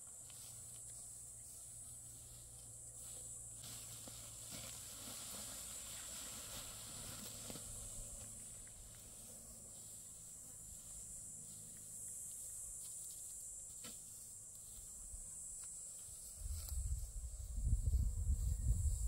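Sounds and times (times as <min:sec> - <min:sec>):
insects chirring: 0:00.0 - 0:19.0
wind buffeting microphone: 0:16.4 - 0:19.0.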